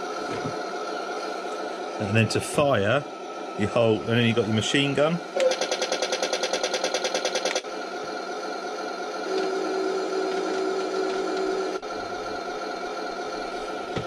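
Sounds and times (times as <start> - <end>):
simulated engine drone from speaker: 0.0 - 5.5.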